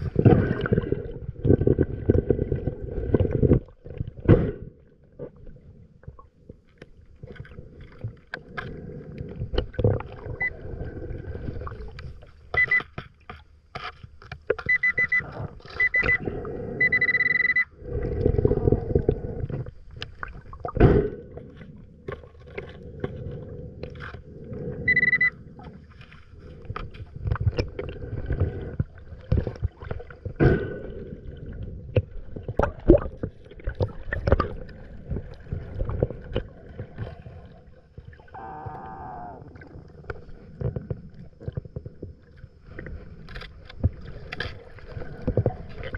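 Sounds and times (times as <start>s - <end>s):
water rushing and bubbling: 0.0s - 12.8s, 14.6s - 45.9s
metal detector beeps: 12.6s - 12.9s, 14.6s - 17.8s, 24.9s - 25.4s.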